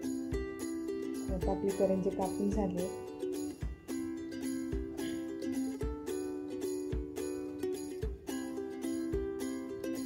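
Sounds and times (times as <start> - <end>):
soft low beat: 1.2 - 2.9, 3.5 - 5.1.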